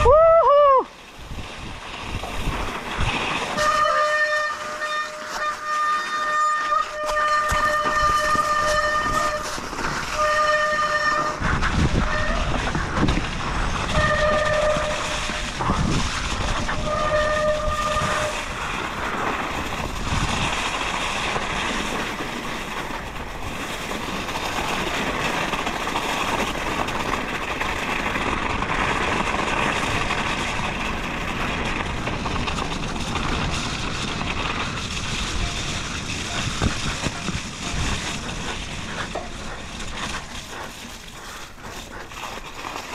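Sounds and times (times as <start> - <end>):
bike riding through mud and snow: 0.0 - 42.9
bike disc brakes squealing: 3.4 - 15.7.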